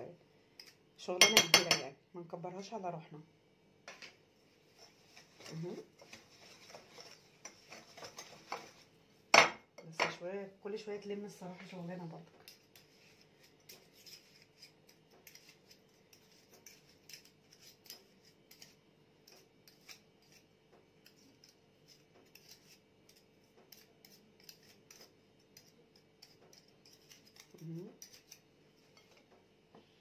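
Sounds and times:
whisk scraping a glass bowl: 0:04.7 - 0:08.8, 0:21.1 - 0:29.2.

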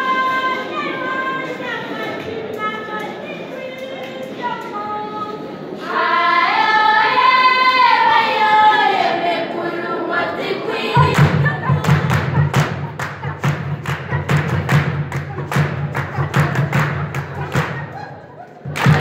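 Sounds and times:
girls singing together: 0:00.0 - 0:19.0
drum beating: 0:10.9 - 0:19.0.

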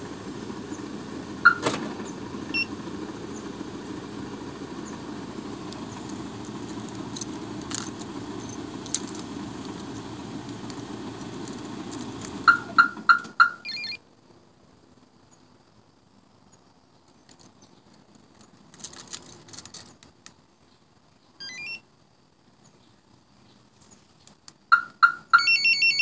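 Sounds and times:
car engine idling: 0:00.0 - 0:14.0
car alarm remote beeps: 0:01.4 - 0:01.8, 0:02.5 - 0:02.7, 0:12.4 - 0:14.0, 0:21.4 - 0:21.8, 0:24.7 - 0:26.0
keys jingling: 0:06.0 - 0:12.5, 0:18.3 - 0:20.1.

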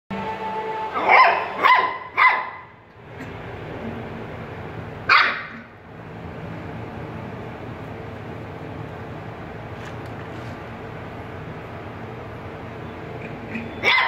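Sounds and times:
puppies barking: 0:01.0 - 0:02.8, 0:05.0 - 0:05.8, 0:13.0 - 0:14.0.

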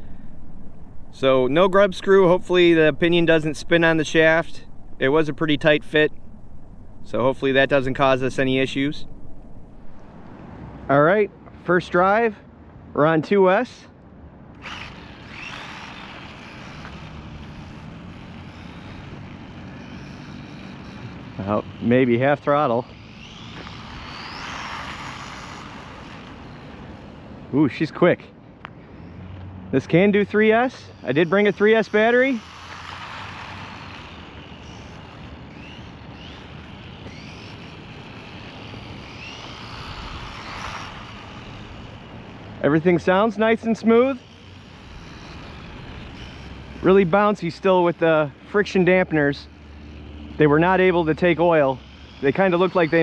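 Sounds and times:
electric motor whine: 0:00.0 - 0:10.6, 0:14.6 - 0:27.5, 0:28.6 - 0:53.0
tyre noise on asphalt: 0:14.6 - 0:22.1, 0:22.8 - 0:27.3, 0:28.6 - 0:49.1.

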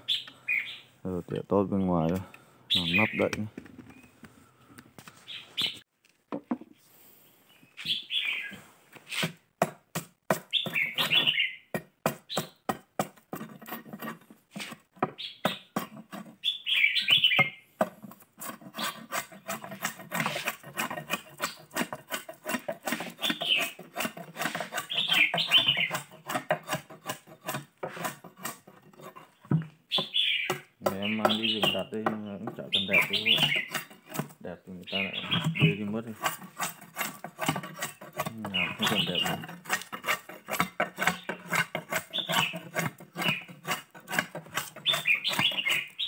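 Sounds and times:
birds chirping: 0:00.0 - 0:05.9, 0:07.1 - 0:08.6, 0:10.5 - 0:11.7, 0:12.3 - 0:12.7, 0:15.0 - 0:17.7, 0:22.9 - 0:23.8, 0:24.4 - 0:26.2, 0:29.2 - 0:36.2, 0:38.0 - 0:43.7, 0:44.8 - 0:46.0
machete chopping wood: 0:09.2 - 0:13.4.

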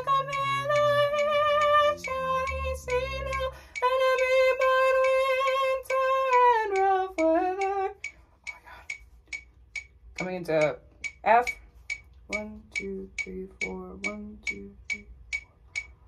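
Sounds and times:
woman singing: 0:00.0 - 0:08.0, 0:12.3 - 0:15.2
steady metronome click: 0:00.0 - 0:16.0.

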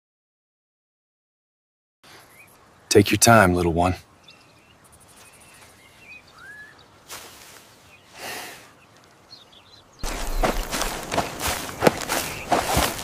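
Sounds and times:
faint bird chirp: 0:02.0 - 0:13.0
footsteps crunching through dry grass: 0:05.1 - 0:08.1, 0:10.0 - 0:13.0.

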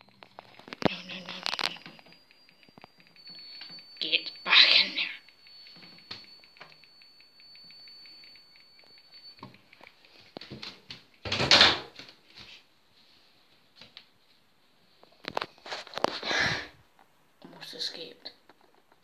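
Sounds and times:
faint high whine: 0:00.0 - 0:11.6.

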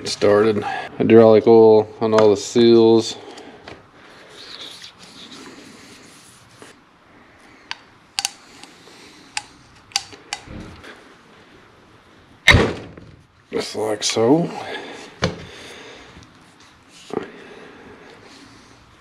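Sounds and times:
sharp metal clicks and knocks: 0:07.7 - 0:08.4, 0:09.4 - 0:10.6.

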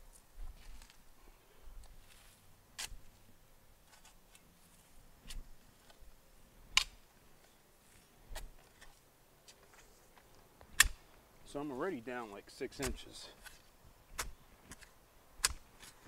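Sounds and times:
spade striking soil: 0:12.7 - 0:16.0.

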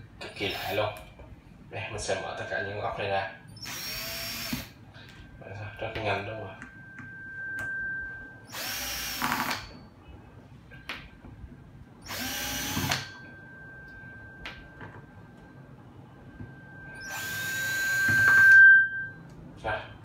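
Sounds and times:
cordless drill motor whirring: 0:00.4 - 0:00.9, 0:03.6 - 0:04.8, 0:08.5 - 0:09.7, 0:12.0 - 0:13.1, 0:17.0 - 0:18.5.

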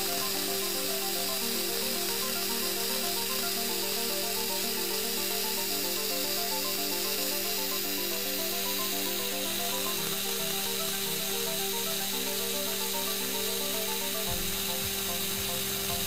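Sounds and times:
bright hiss: 0:00.0 - 0:16.0
low electronic drone: 0:00.0 - 0:16.0
repeating stepped synth notes: 0:00.0 - 0:16.0.

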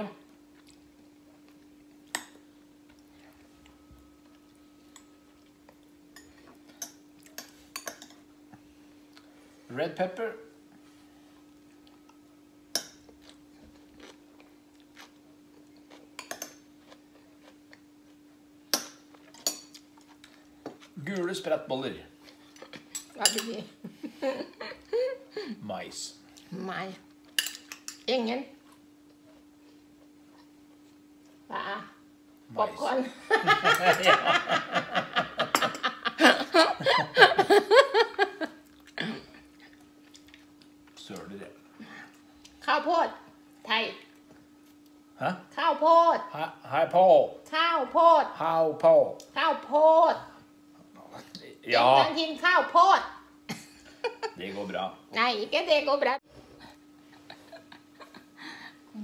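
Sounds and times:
faint steady hum: 0:00.0 - 0:59.0
metal spoon clinking on bowls: 0:06.2 - 0:08.2, 0:16.2 - 0:16.6, 0:22.9 - 0:23.6, 0:27.4 - 0:28.1
man laughing: 0:33.2 - 0:38.6, 0:57.1 - 0:58.6.

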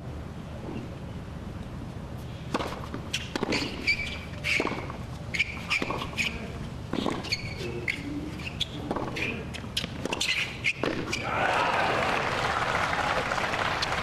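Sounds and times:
tennis ball hitting rackets: 0:02.5 - 0:08.0, 0:08.6 - 0:11.2
tennis ball bouncing: 0:02.5 - 0:11.2
sneakers squeaking on court: 0:02.6 - 0:11.2.

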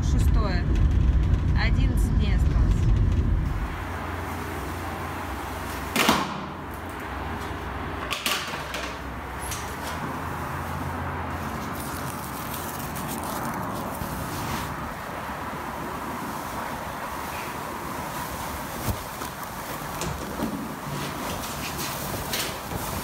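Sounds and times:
low background hum: 0:00.0 - 0:05.3
plastic sheeting swishing and crinkling: 0:03.6 - 0:07.6, 0:09.3 - 0:23.0.

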